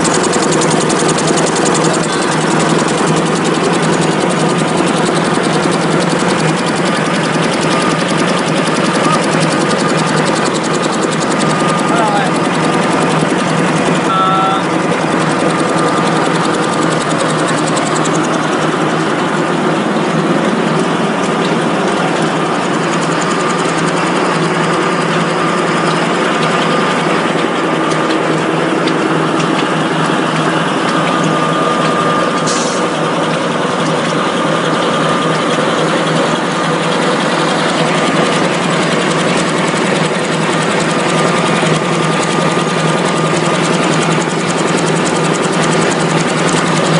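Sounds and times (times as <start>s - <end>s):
machine running steadily: 0.0s - 46.9s.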